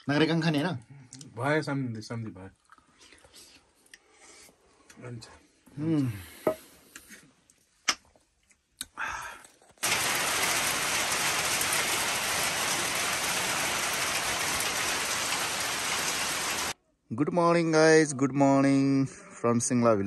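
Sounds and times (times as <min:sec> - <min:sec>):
steady rain falling: 0:09.8 - 0:16.8.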